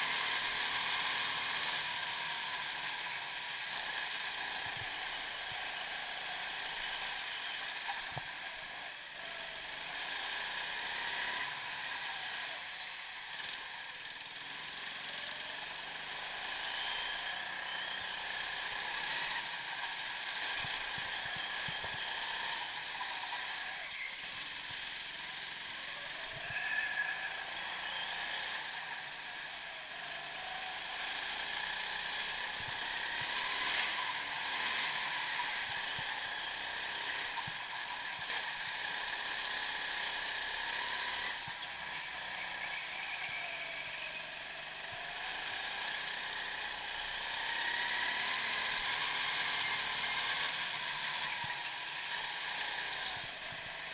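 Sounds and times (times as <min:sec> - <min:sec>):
go-kart running at speed: 0:00.0 - 0:53.9.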